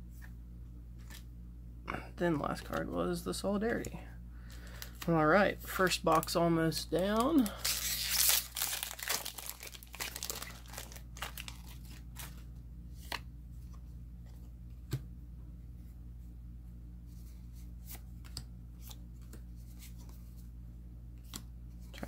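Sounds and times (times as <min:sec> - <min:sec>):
foil wrapper tearing and crinkling: 0:07.0 - 0:12.4.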